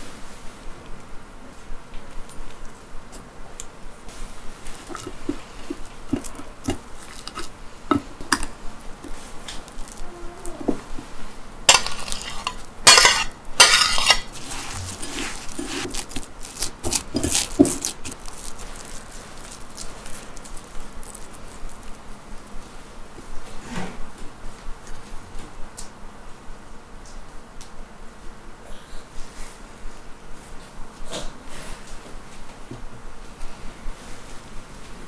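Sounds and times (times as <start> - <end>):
sticky mixture squeezed by hand: 4.5 - 12.7, 14.2 - 22.6
fork mashing banana on plate: 4.6 - 18.2
fork scraping plate: 4.7 - 8.6, 10.6 - 16.0.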